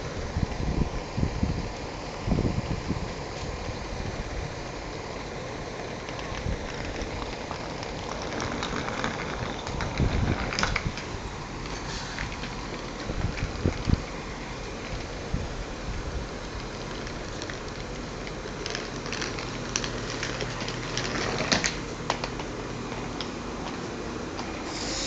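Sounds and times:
diesel railcar rumbling: 0.0s - 25.0s
wind buffeting a microphone: 0.2s - 4.6s, 9.2s - 11.4s, 13.0s - 14.2s.

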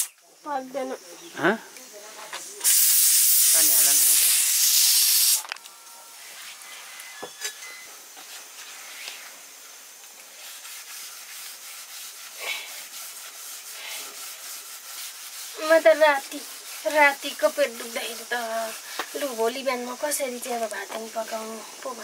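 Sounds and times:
pressure cooker steam hissing: 2.5s - 5.4s, 8.3s - 22.0s
faint rubbing and scraping: 10.2s - 21.9s.

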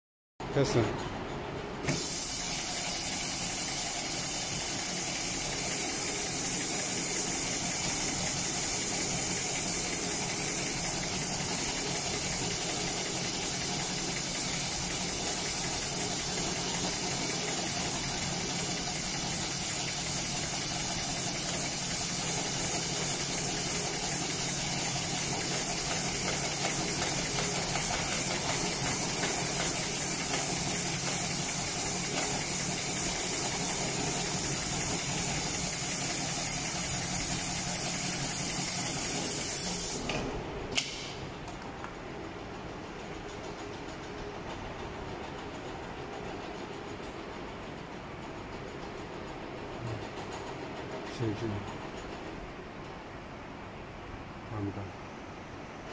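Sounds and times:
hiss: 1.9s - 40.2s
sewing machine running: 2.3s - 39.3s.

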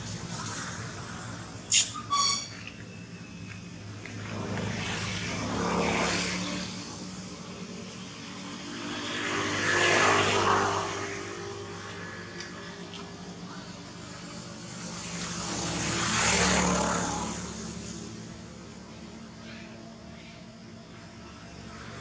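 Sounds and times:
vehicle engines passing by: 0.0s - 22.0s.

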